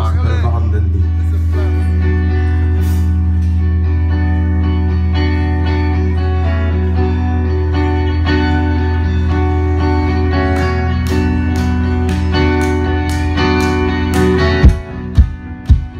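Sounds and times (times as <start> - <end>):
bass: 0.0 - 15.9
electric guitars: 0.0 - 15.9.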